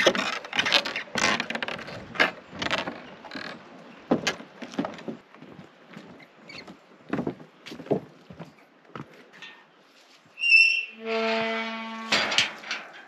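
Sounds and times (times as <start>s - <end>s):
footsteps on wooden planks: 0.0s - 9.4s
bridge creaking: 0.0s - 9.8s, 10.4s - 13.0s.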